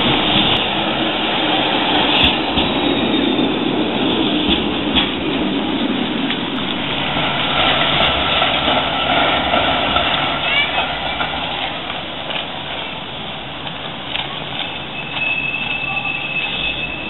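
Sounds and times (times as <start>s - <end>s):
tram wheels rumbling on rail: 0.0s - 17.0s
tram wheel clicks: 13.6s - 17.0s.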